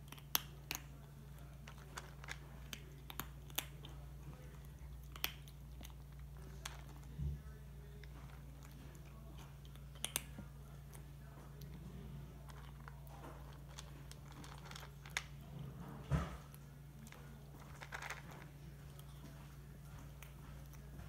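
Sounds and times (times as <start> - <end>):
kitten crunching dry kibble: 0.0 - 21.0
steady low hum: 0.0 - 21.0.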